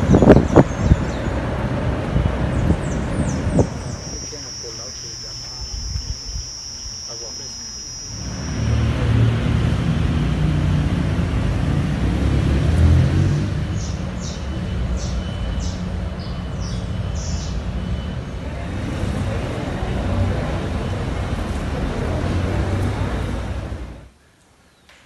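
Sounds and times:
short high chirps: 0:03.6 - 0:09.3.

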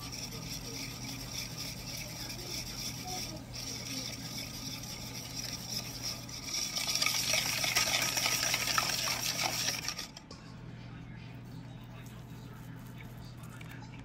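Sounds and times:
whisk ticking against bowl: 0:00.0 - 0:10.3
steady low hum: 0:00.0 - 0:14.0.

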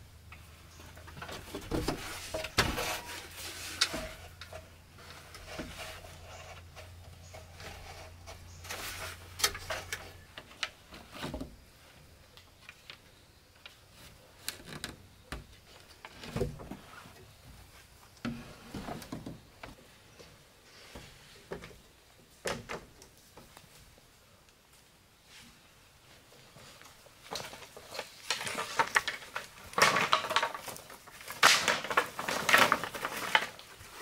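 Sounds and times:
bamboo knocks taps and scrapes: 0:00.9 - 0:11.6.

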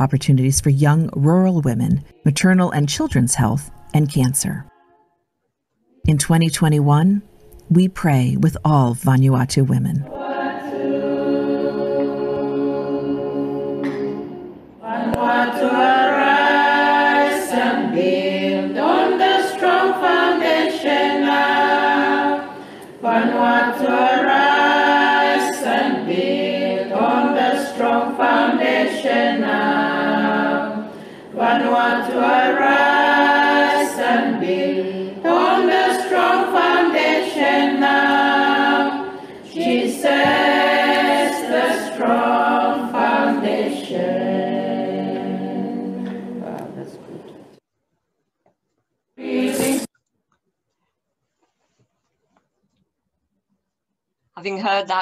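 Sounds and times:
a cappella choir singing: 0:10.0 - 0:47.6, 0:49.2 - 0:49.9.

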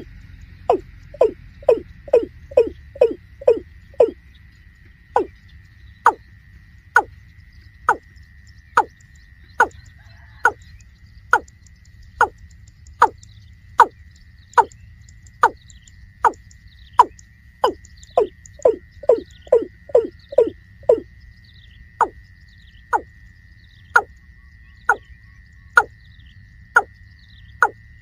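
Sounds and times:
bird calling hollow sliding notes: 0:00.0 - 0:04.2, 0:05.1 - 0:05.4, 0:15.4 - 0:15.6, 0:17.0 - 0:21.0.

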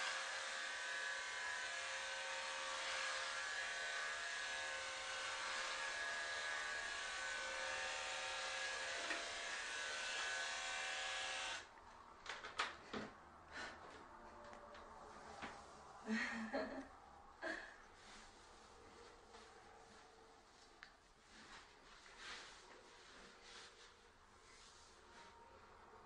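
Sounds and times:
electric hair clippers buzzing: 0:00.0 - 0:11.7.

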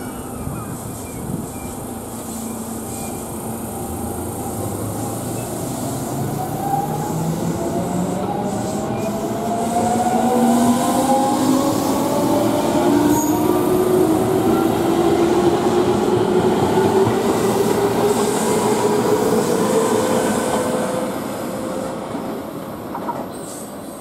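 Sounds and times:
wheels rumbling on rail: 0:00.0 - 0:24.0.

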